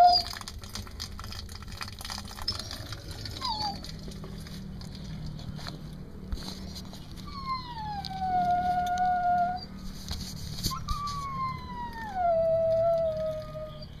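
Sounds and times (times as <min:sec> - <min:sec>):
dog whining: 0:00.0 - 0:00.4, 0:02.4 - 0:04.0, 0:07.2 - 0:09.8, 0:10.7 - 0:14.0.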